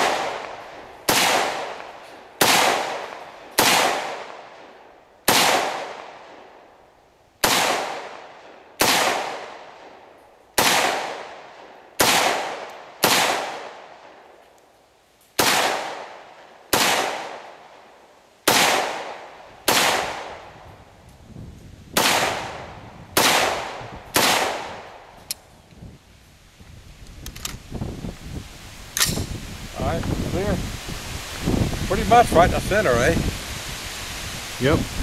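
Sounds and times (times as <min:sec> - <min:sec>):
rifle single shots: 0:00.0 - 0:06.5, 0:07.4 - 0:10.0, 0:10.6 - 0:14.2, 0:15.4 - 0:17.8, 0:18.4 - 0:20.4, 0:22.0 - 0:25.1.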